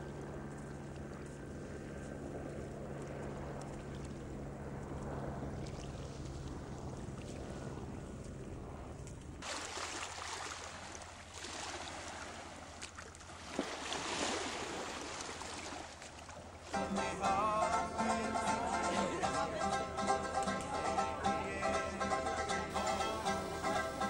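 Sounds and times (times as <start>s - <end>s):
wind: 0.0s - 24.0s
boat motor humming: 16.4s - 24.0s.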